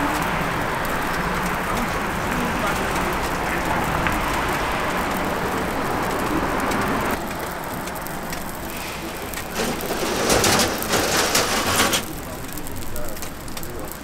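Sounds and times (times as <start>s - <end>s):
food sizzling on a griddle: 0.0s - 14.0s
street traffic: 0.0s - 14.0s
spatula scraping a griddle: 8.7s - 12.1s.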